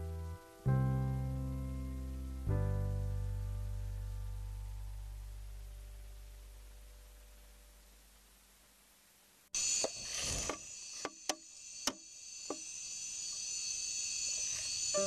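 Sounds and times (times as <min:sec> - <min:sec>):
insect chorus: 0:09.6 - 0:15.0.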